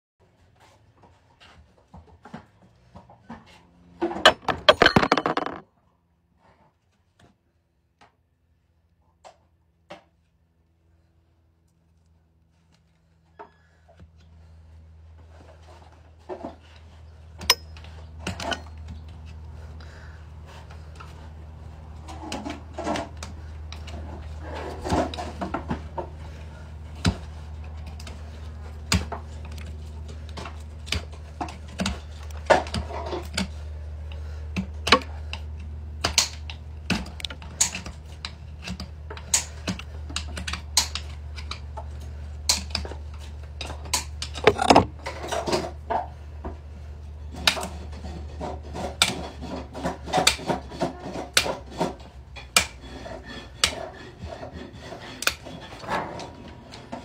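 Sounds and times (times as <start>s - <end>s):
scraping hoof: 2.3s - 5.6s, 44.4s - 45.8s, 47.2s - 57.0s.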